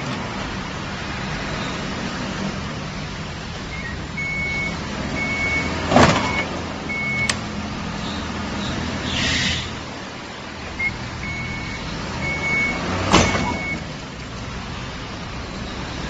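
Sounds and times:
truck engine running: 0.0 - 16.0
reversing beeper: 3.7 - 7.3, 10.8 - 13.9
loud thump: 13.1 - 13.7.

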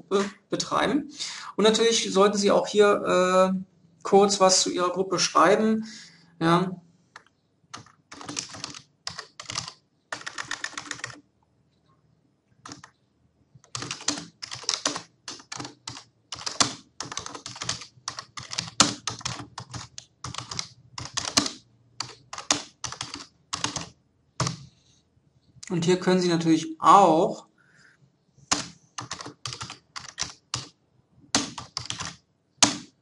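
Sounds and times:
typing on computer keyboard: 7.2 - 11.2, 12.6 - 13.0, 13.6 - 24.6, 28.5 - 33.0.

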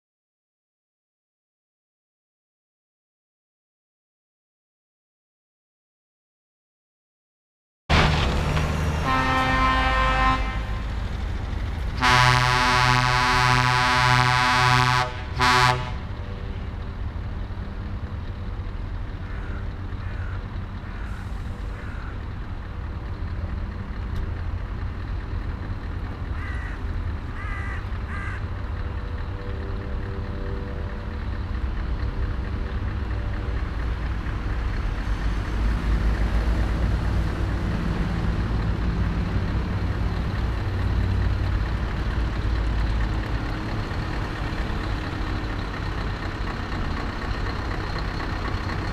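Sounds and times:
lorry diesel engines rumbling: 7.9 - 48.9
truck air horn blast: 9.0 - 10.9, 12.0 - 16.1
crows cawing: 19.2 - 22.3, 26.3 - 28.5.

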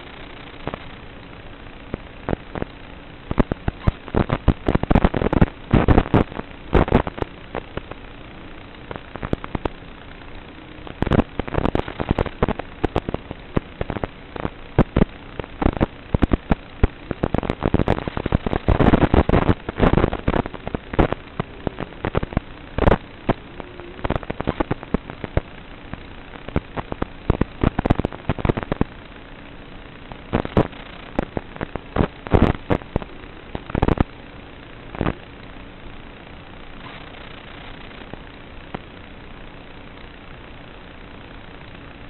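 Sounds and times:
static hiss: 0.0 - 42.0
crackling pops: 1.9 - 8.0, 8.7 - 9.8, 10.8 - 29.2, 30.0 - 34.2.

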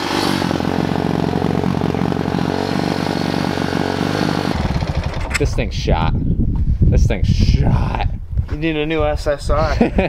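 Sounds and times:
small four-stroke engine running: 0.0 - 5.6.

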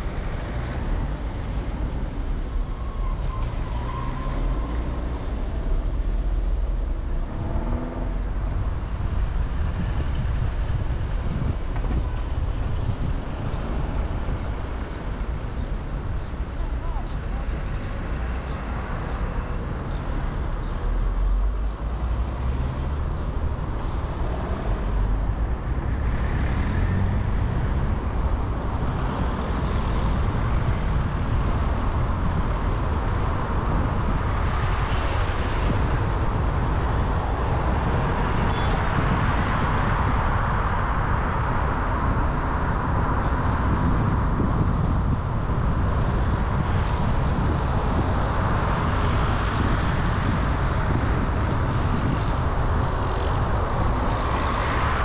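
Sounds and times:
road noise: 0.0 - 55.0
car engine: 4.1 - 10.2.

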